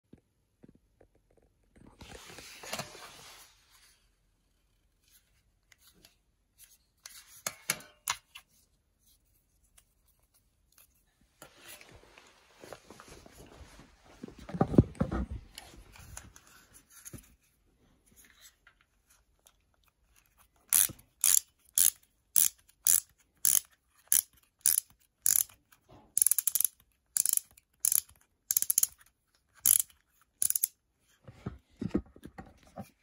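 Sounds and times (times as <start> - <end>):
toy launcher ratchet clattering: 20.7 - 25.6, 26.2 - 29.0, 29.6 - 30.8.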